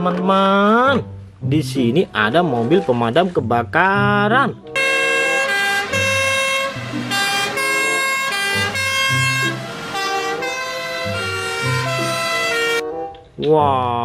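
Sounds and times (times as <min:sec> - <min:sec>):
two-tone fire engine sirens: 0:04.8 - 0:12.8.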